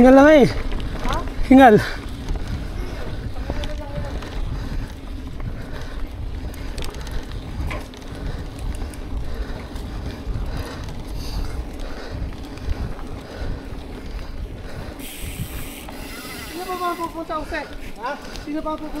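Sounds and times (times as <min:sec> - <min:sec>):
wind rumbling on microphone: 0:00.0 - 0:19.0
small clicks and rattles: 0:00.4 - 0:14.4.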